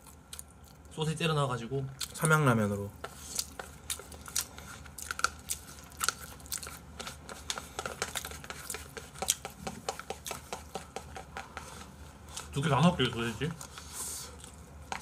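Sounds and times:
chewing: 0.0s - 0.9s, 3.0s - 12.5s, 13.5s - 15.0s.

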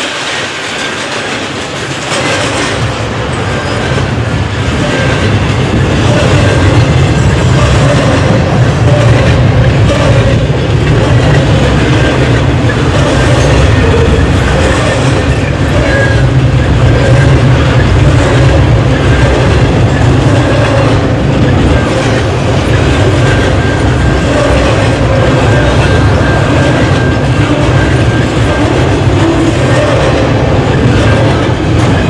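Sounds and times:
freight train wheels rumbling on rails: 0.0s - 32.0s.

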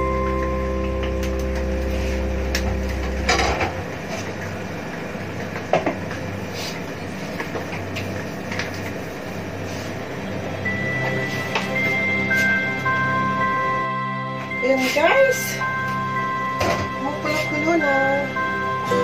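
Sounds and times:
soft background music: 0.0s - 5.4s, 9.5s - 19.0s.

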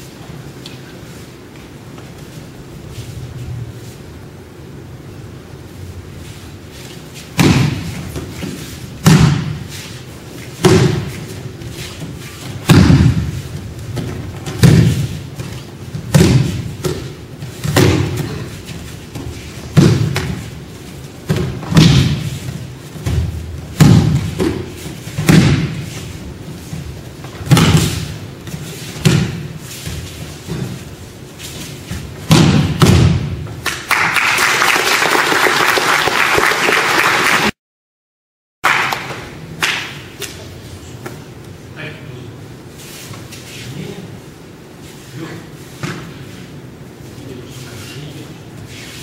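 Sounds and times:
bodies thudding onto mats: 7.3s - 9.7s, 10.5s - 20.6s, 21.2s - 30.9s, 31.7s - 33.5s.

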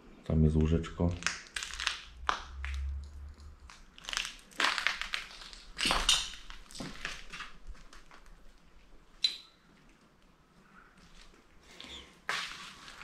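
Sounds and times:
footsteps crunching over debris: 3.8s - 9.0s, 12.2s - 13.0s.

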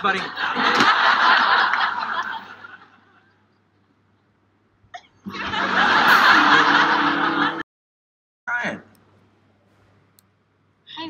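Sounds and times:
studio audience laughing: 0.0s - 3.4s, 5.3s - 7.6s.

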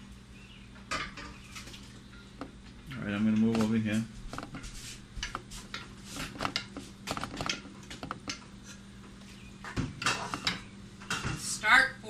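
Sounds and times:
pot and utensils clicking: 2.1s - 8.5s, 10.0s - 10.7s.

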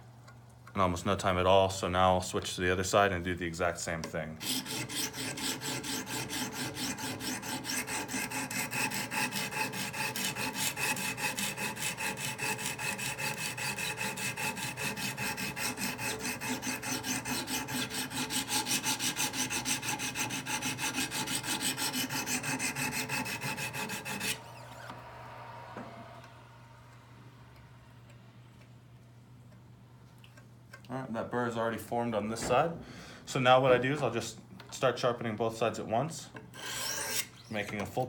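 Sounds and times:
stone scrubbing knife blade: 4.4s - 24.4s, 36.6s - 37.7s.

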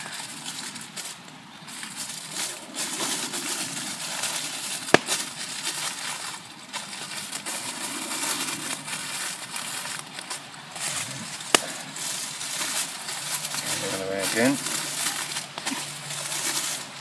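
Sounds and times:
aluminium foil crinkling: 0.0s - 17.0s
foil snapping: 0.0s - 17.0s.

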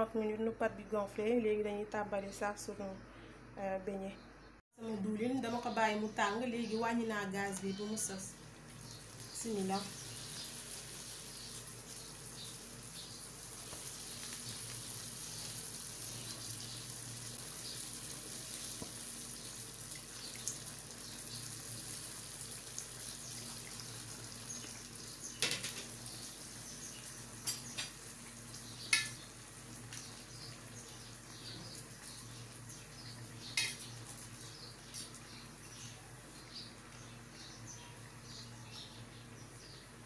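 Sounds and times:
dough sizzling in hot oil: 8.2s - 37.6s.

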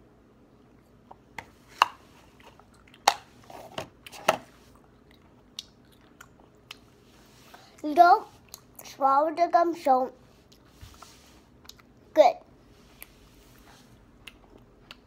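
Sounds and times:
child chewing gum smacking: 4.7s - 6.9s, 14.0s - 15.0s.

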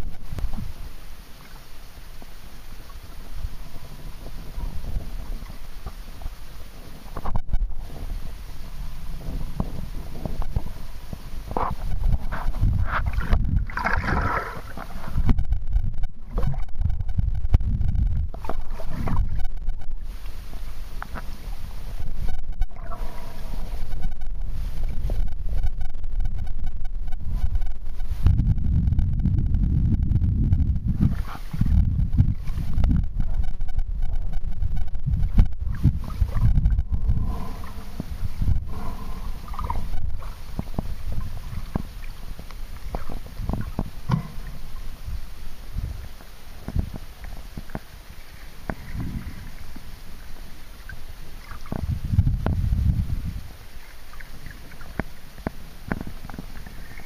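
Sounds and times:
underwater water rumble: 0.0s - 57.0s
underwater clicks and pops: 7.1s - 7.7s, 11.5s - 20.0s, 38.0s - 44.6s, 54.4s - 56.7s
faint brief tone: 21.9s - 29.6s, 30.4s - 40.6s.

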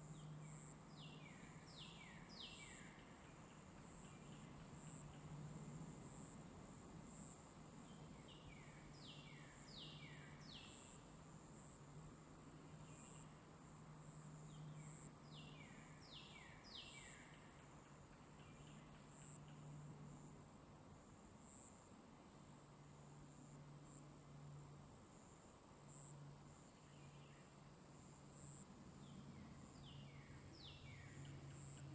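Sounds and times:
bird song: 0.0s - 5.4s, 7.8s - 11.1s, 12.6s - 13.5s, 14.4s - 19.8s, 26.6s - 27.6s, 29.0s - 31.9s.

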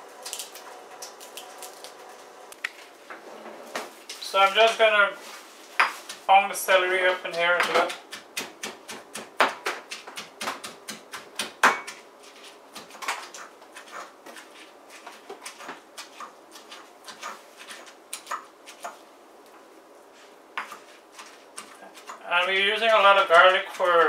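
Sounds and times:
stone pestle pounding in mortar: 7.3s - 12.0s.

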